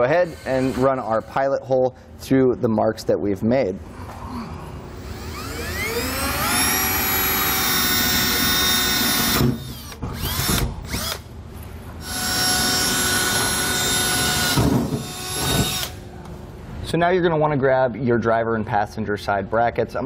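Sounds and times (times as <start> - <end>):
cordless drill whining: 4.9 - 11.2, 12.0 - 16.0.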